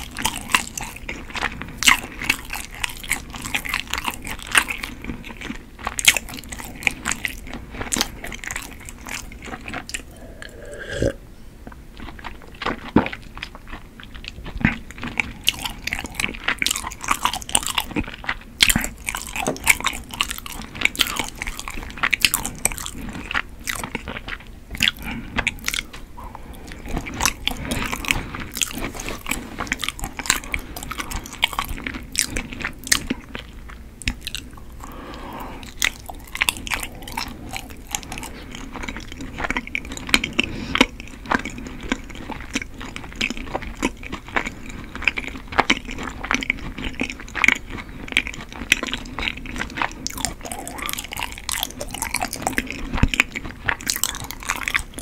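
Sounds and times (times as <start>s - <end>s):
chewing and biting: 0.0s - 11.2s, 11.9s - 55.0s
mouth clicks: 9.8s - 11.2s.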